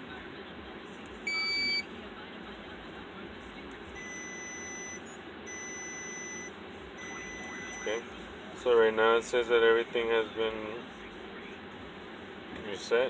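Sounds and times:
low steady hum: 0.0s - 13.0s
faint high steady tone: 4.0s - 8.1s.

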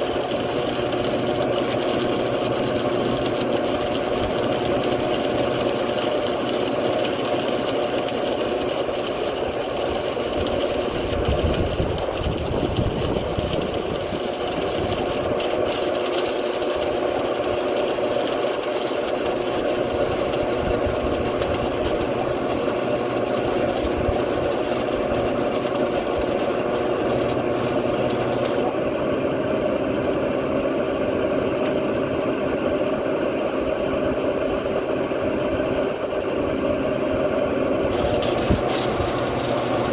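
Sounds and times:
welding hiss and crackle: 0.0s - 28.8s, 37.9s - 39.9s
welder transformer hum: 0.0s - 39.9s.

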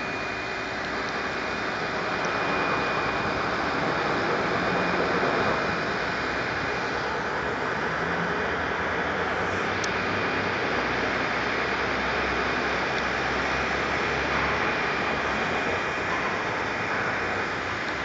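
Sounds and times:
road traffic: 0.0s - 18.0s.

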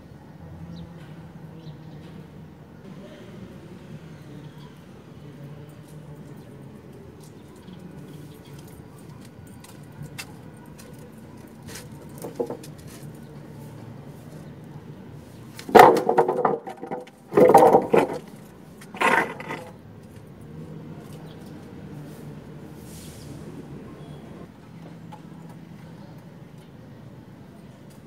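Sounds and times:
wooden planks clattering on concrete: 11.6s - 13.2s, 15.6s - 19.8s.

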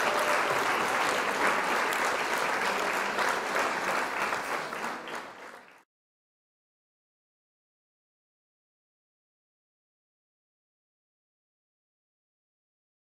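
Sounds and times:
crowd applause: 0.0s - 5.9s.

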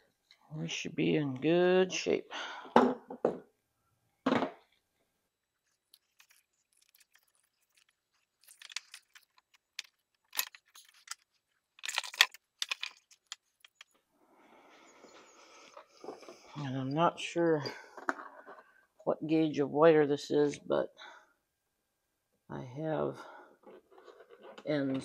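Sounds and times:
rustling of cable handling: 5.5s - 14.1s, 23.6s - 25.0s.

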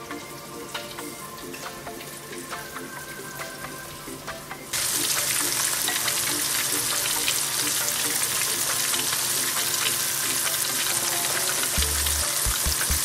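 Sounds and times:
frying sizzle with crackling pops: 4.7s - 13.0s.

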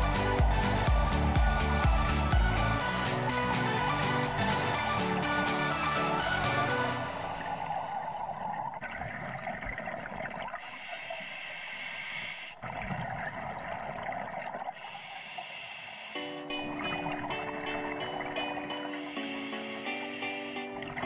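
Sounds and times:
exhaled bubbles gurgling underwater: 3.7s - 11.4s, 12.5s - 14.9s
regulator inhale hiss: 10.6s - 12.6s, 14.8s - 16.4s, 18.9s - 20.9s.

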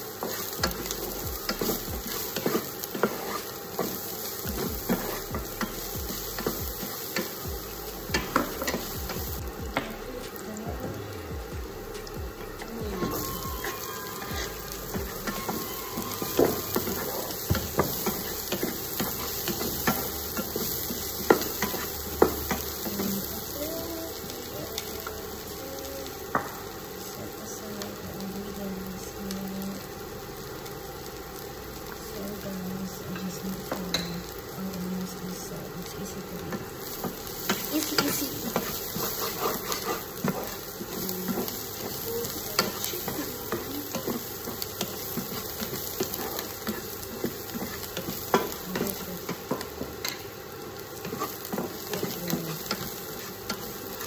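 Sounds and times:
spatula stirring and scraping: 0.0s - 7.4s, 12.6s - 23.2s, 36.5s - 54.0s
food sizzling in oil: 0.0s - 54.0s
spatula tapping pan: 12.3s - 23.1s, 36.5s - 50.3s.

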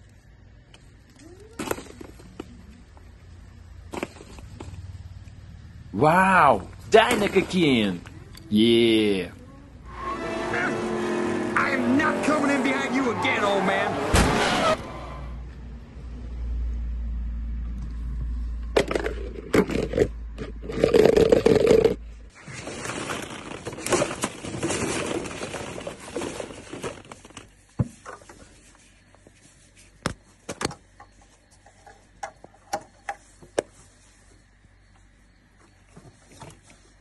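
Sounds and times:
plastic balls rustling and knocking: 0.0s - 3.1s, 3.8s - 4.8s, 18.6s - 33.9s.

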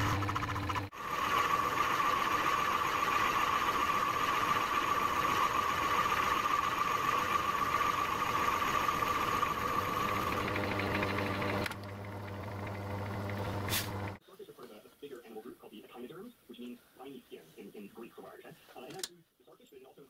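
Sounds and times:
lathe running with high whine: 0.0s - 14.2s
low motor hum: 0.0s - 14.2s.

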